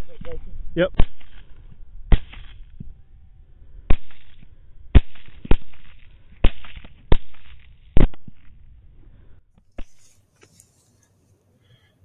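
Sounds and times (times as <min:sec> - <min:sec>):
rifle shots with echo: 0:00.9 - 0:01.5, 0:03.9 - 0:08.5.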